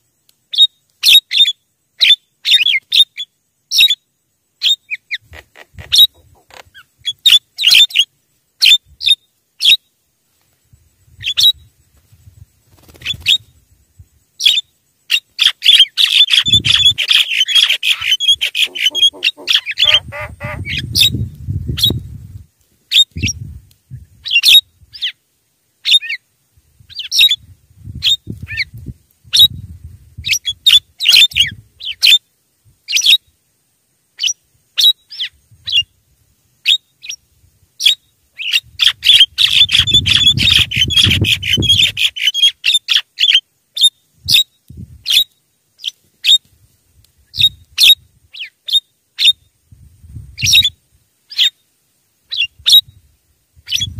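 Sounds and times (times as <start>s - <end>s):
myna bird calling: 0.5s - 4.0s, 4.6s - 9.8s, 14.4s - 22.0s, 37.8s - 46.4s, 47.3s - 49.4s, 52.3s - 52.9s.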